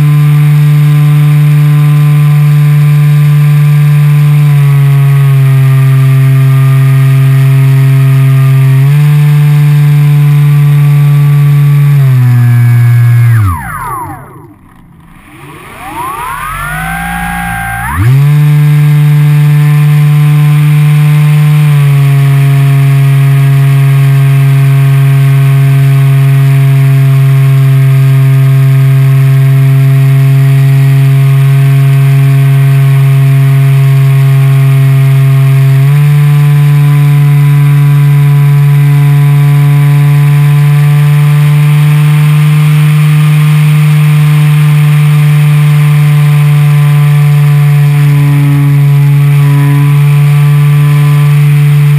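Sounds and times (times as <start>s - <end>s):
electric motor and propeller drone: 12.0s - 19.4s.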